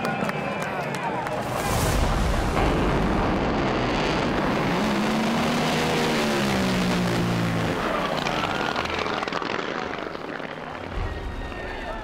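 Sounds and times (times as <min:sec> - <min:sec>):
racing boat engines roaring: 0:00.1 - 0:12.0.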